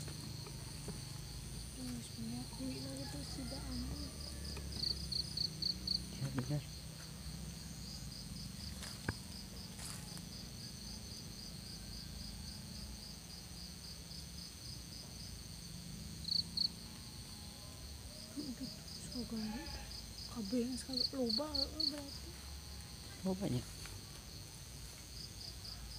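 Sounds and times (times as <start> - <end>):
insects chirping: 0.0 - 25.9
faint high buzz: 15.1 - 18.8.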